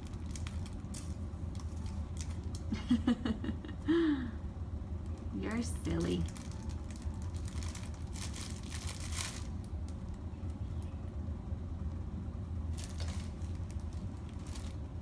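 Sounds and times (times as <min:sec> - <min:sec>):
plastic bag crinkling: 0:00.0 - 0:02.8, 0:05.8 - 0:10.2, 0:12.7 - 0:15.0
steady low hum: 0:00.0 - 0:15.0.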